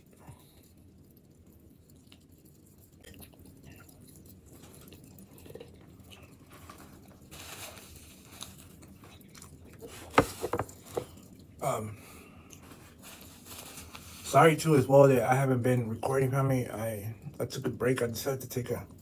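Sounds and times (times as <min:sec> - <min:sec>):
person chewing food: 0:00.0 - 0:11.6, 0:12.4 - 0:14.2.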